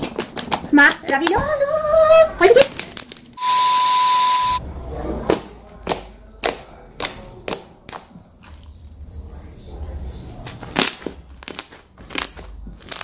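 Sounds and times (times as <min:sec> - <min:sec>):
loud hiss: 0:03.4 - 0:04.6
steady high beep: 0:03.4 - 0:04.6.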